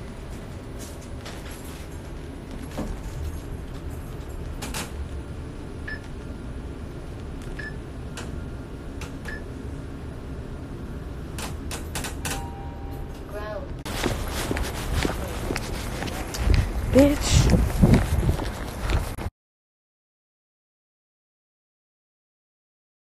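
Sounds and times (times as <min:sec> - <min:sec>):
phone rubbing against clothing: 0:13.9 - 0:19.2.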